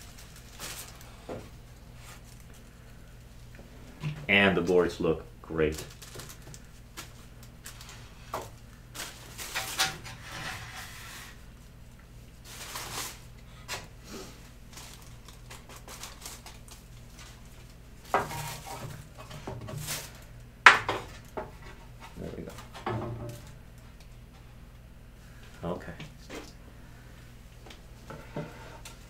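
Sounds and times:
plastic bags rustling: 0:00.0 - 0:03.5, 0:05.5 - 0:10.3, 0:12.4 - 0:20.4.

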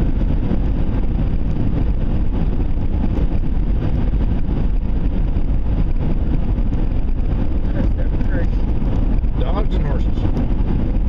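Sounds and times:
engine and road noise rumble: 0:00.0 - 0:11.0.

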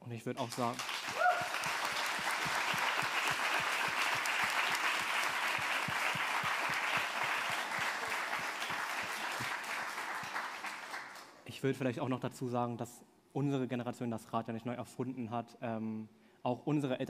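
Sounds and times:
audience applauding: 0:00.4 - 0:11.4.

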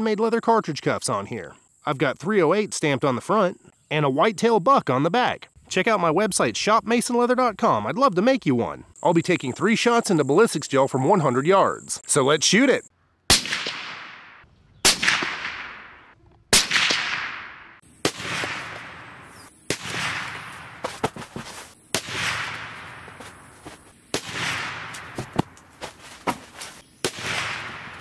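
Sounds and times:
suppressed rifle shots with echo: 0:13.3 - 0:20.6.

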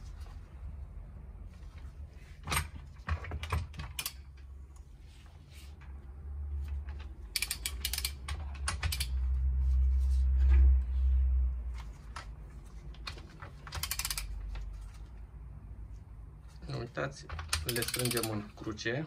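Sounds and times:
ratchet wrench clicking: 0:03.9 - 0:04.3, 0:07.2 - 0:09.2, 0:13.8 - 0:14.4, 0:17.5 - 0:18.4.

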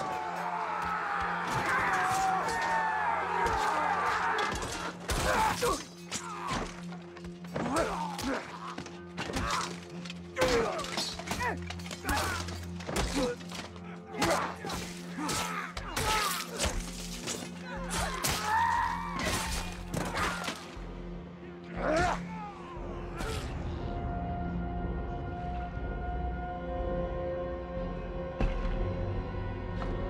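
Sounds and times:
men shouting: 0:00.0 - 0:06.9, 0:10.4 - 0:16.8
low music drone: 0:00.0 - 0:30.0
swords clashing: 0:03.4 - 0:06.8, 0:07.6 - 0:20.6.

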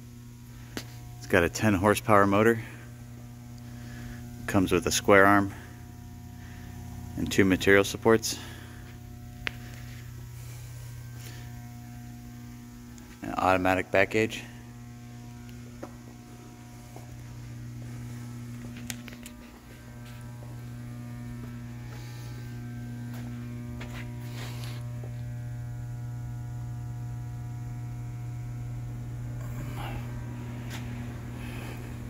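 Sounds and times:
electric motor hum: 0:00.0 - 0:32.0.

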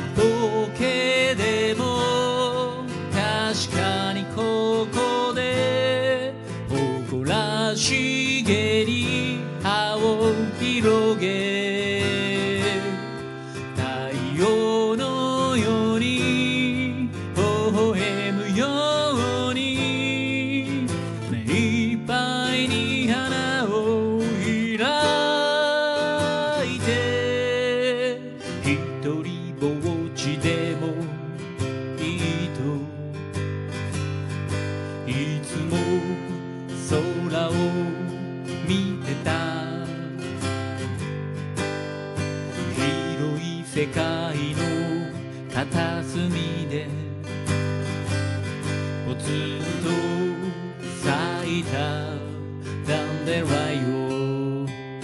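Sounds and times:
man singing: 0:00.0 - 0:33.2, 0:34.9 - 0:41.0, 0:42.6 - 0:47.7, 0:48.6 - 0:55.0
acoustic guitar strumming: 0:00.0 - 0:55.0.

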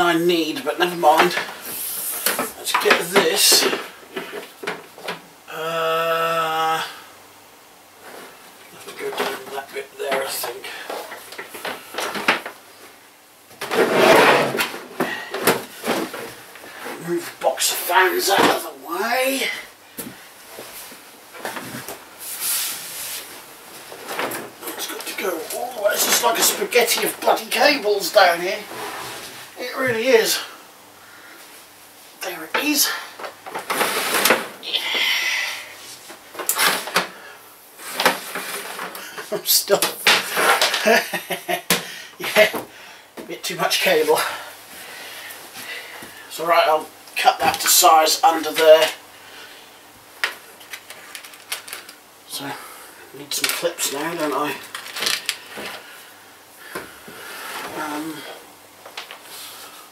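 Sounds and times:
cable scraping behind furniture: 0:13.6 - 0:16.1, 0:28.6 - 0:29.6
scraping rustle: 0:13.6 - 0:19.6, 0:20.4 - 0:30.4, 0:32.4 - 0:34.8, 0:37.8 - 0:41.0.

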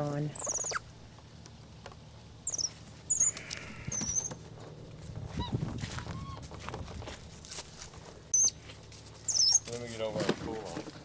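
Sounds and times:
monkeys squeaking: 0:00.3 - 0:00.9, 0:02.4 - 0:04.5, 0:05.4 - 0:06.5, 0:08.3 - 0:09.8.

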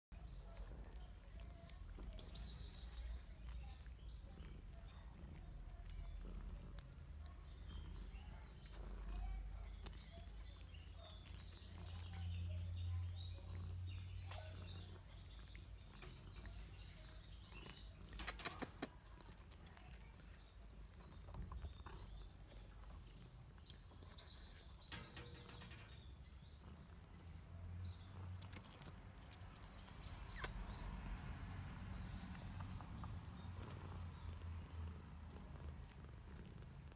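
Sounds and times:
bird chirps: 0:01.0 - 0:03.3, 0:10.0 - 0:18.9, 0:21.0 - 0:26.9, 0:29.8 - 0:31.0
sharp clicks: 0:18.2 - 0:18.9.

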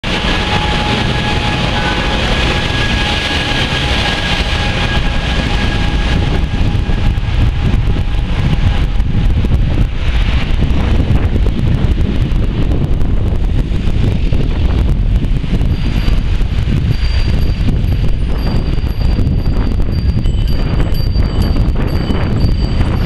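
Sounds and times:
rushing road noise: 0:00.0 - 0:23.0
wind buffeting microphone: 0:00.0 - 0:23.0.

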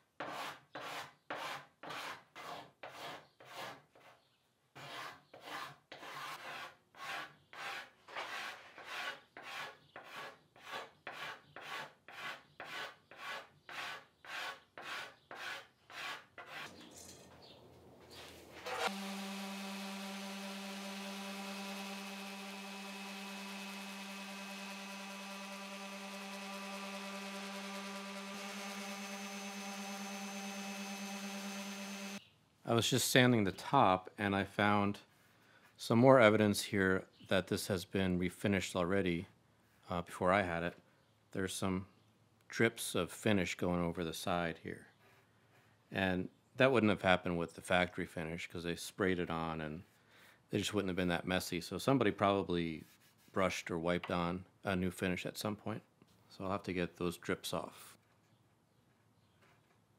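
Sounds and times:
orbit sander humming: 0:18.3 - 0:32.2
card scraper scraping wood: 0:18.6 - 0:19.2.

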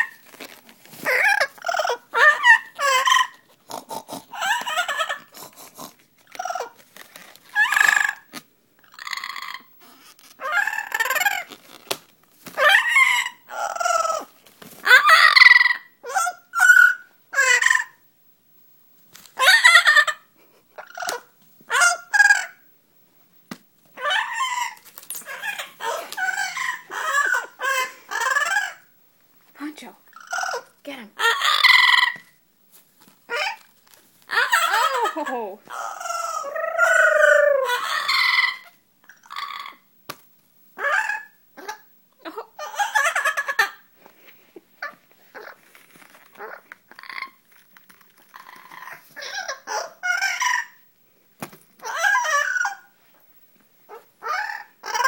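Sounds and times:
parrot squawking: 0:01.0 - 0:03.5, 0:04.1 - 0:05.5, 0:06.3 - 0:06.8, 0:07.5 - 0:11.6, 0:12.6 - 0:18.0, 0:19.4 - 0:22.6, 0:24.0 - 0:28.9, 0:30.1 - 0:32.3, 0:33.3 - 0:33.6, 0:34.3 - 0:39.9, 0:40.8 - 0:41.9, 0:42.6 - 0:43.8, 0:44.8 - 0:45.6, 0:46.3 - 0:47.4, 0:48.2 - 0:50.9, 0:51.8 - 0:53.0, 0:53.9 - 0:55.0.

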